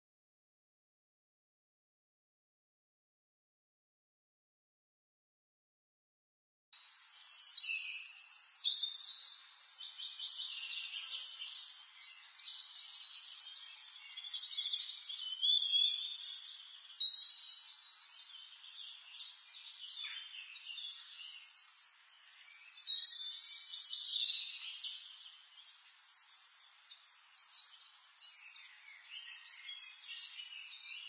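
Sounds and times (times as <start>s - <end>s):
songbirds singing: 6.8s - 31.0s.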